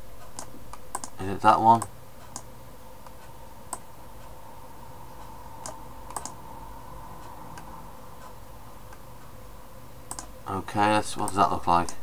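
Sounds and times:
faint electrical hum: 0:00.0 - 0:12.0
computer mouse clicks: 0:00.2 - 0:01.2, 0:01.8 - 0:03.8, 0:05.6 - 0:06.4, 0:10.1 - 0:10.3, 0:11.2 - 0:12.0.

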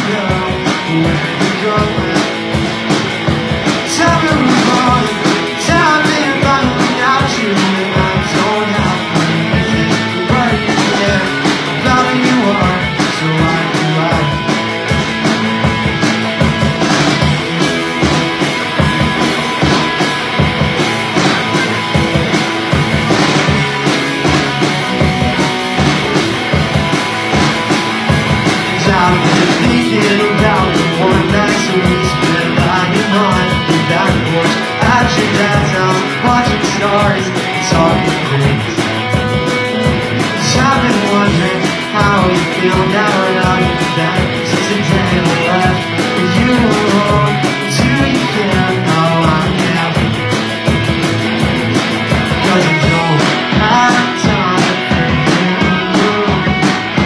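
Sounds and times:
rock band playing: 0:00.0 - 0:57.0.

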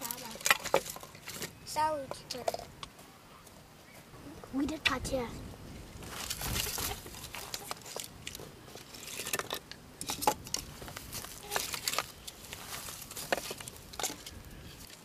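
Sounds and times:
twigs clicking and crackling: 0:00.0 - 0:03.0, 0:06.0 - 0:15.0
rustling: 0:05.8 - 0:15.0.

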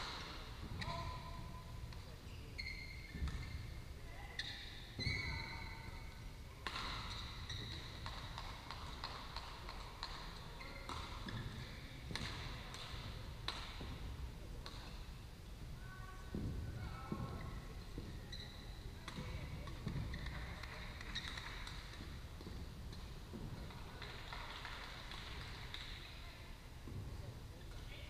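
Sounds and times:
shoe squeaks on court: 0:00.1 - 0:06.2, 0:06.8 - 0:08.2, 0:10.5 - 0:11.8, 0:17.4 - 0:23.0
racket striking shuttlecock: 0:06.6 - 0:13.9.

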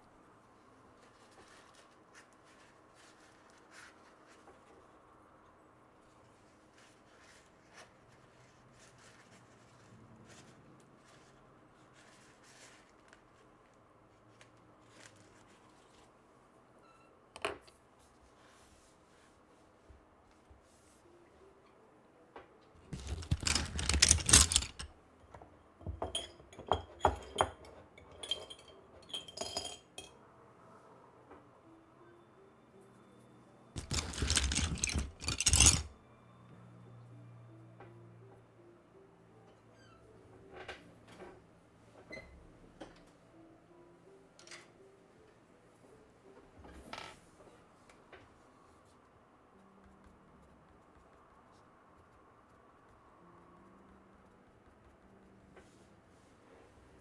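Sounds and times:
small hard objects clinking: 0:22.9 - 0:24.9, 0:33.8 - 0:35.9.

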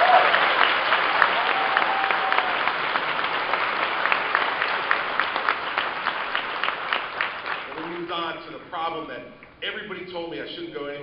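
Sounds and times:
large audience applauding: 0:00.0 - 0:08.2.

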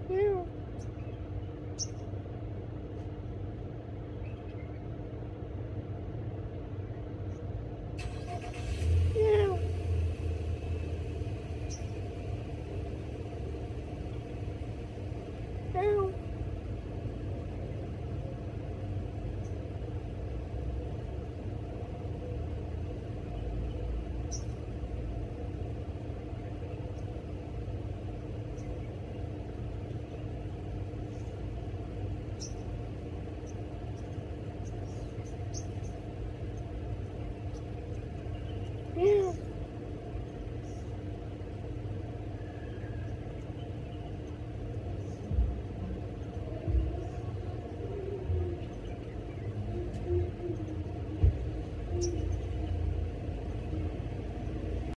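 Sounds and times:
steady low rumble: 0:00.0 - 0:55.0.

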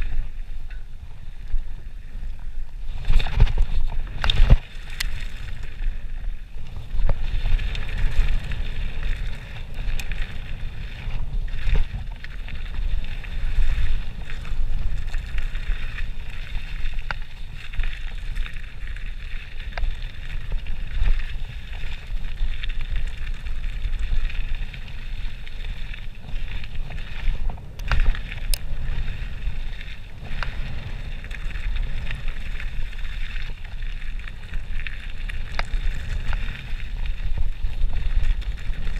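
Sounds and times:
bike tyres on gravel: 0:00.0 - 0:38.9
wind buffeting microphone: 0:00.0 - 0:38.9
sharp clicks and knocks from bumps: 0:03.0 - 0:05.7, 0:26.8 - 0:28.7.

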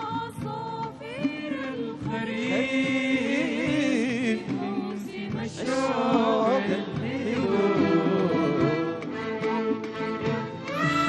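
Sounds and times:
band accompaniment: 0:00.0 - 0:11.0
man singing into a microphone: 0:02.4 - 0:04.5.

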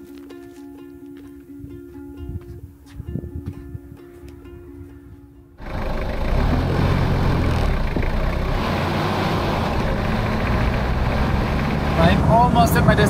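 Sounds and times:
road and wind noise: 0:01.6 - 0:13.0
low engine hum: 0:05.6 - 0:13.0.

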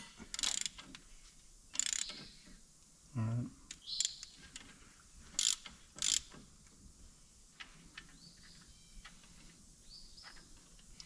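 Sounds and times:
ratchet clicking: 0:00.3 - 0:00.9, 0:01.7 - 0:02.2, 0:05.4 - 0:06.4.

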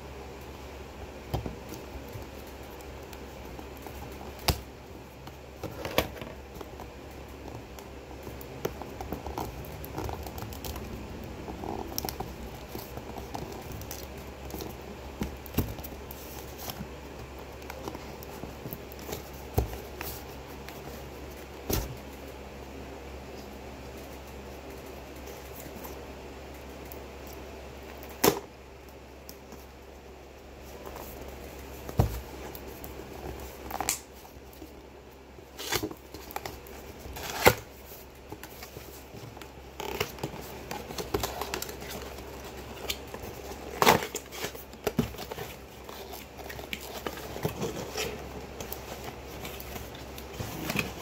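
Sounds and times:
steady low hum: 0:00.0 - 0:51.0
cardboard scraping and crackling: 0:01.0 - 0:22.3, 0:30.6 - 0:51.0.

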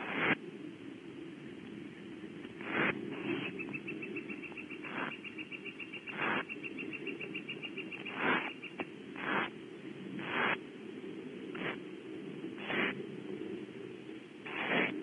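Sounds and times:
owlets begging hisses: 0:02.6 - 0:04.0, 0:04.8 - 0:05.2, 0:06.0 - 0:06.6, 0:07.9 - 0:09.6, 0:10.2 - 0:10.6, 0:12.6 - 0:13.0, 0:14.4 - 0:15.0.

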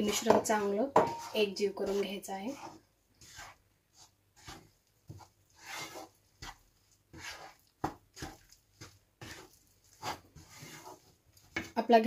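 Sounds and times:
spatula scraping dough in pan: 0:00.0 - 0:12.0.

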